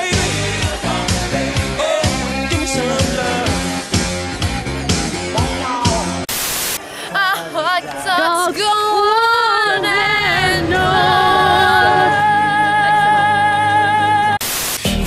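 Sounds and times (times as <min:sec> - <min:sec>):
woman singing loudly: 0:07.2 - 0:14.4.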